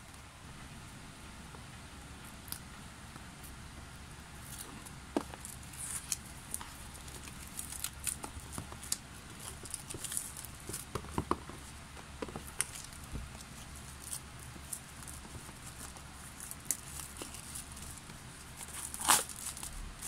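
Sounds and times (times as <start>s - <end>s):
faint low hum: 0.0s - 20.0s
plastic wrap crinkling: 4.4s - 20.0s.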